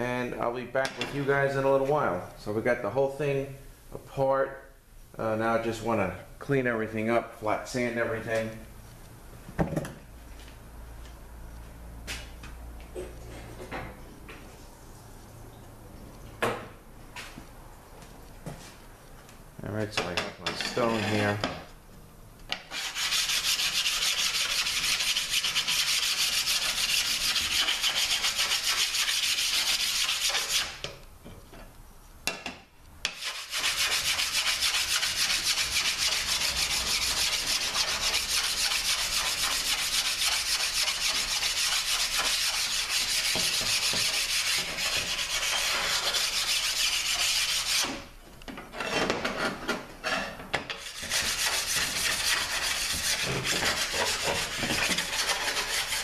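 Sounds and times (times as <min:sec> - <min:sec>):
stone scraping on metal: 0:20.5 - 0:21.5, 0:33.1 - 0:47.9, 0:48.7 - 0:56.0.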